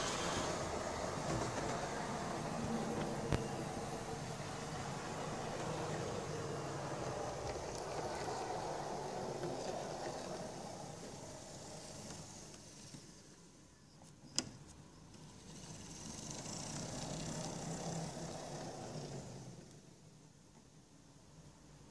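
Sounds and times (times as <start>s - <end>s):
model train motor hum: 0.0s - 13.6s, 15.1s - 20.0s.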